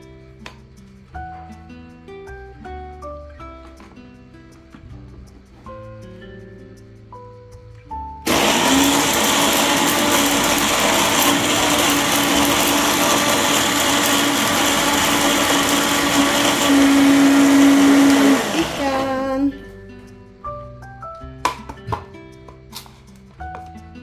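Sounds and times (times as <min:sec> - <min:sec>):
background music: 0:00.0 - 0:24.0
blender grinding: 0:08.3 - 0:19.5.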